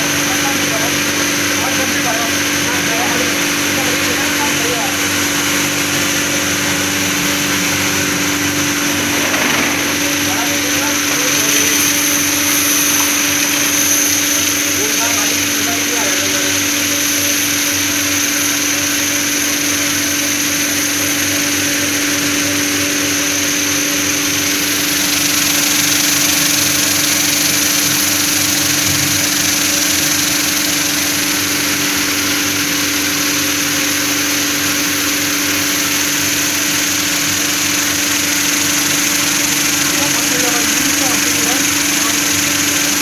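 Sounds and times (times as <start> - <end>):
steady motor hum: 0.0 - 43.0
metal parts rattling: 9.0 - 10.3.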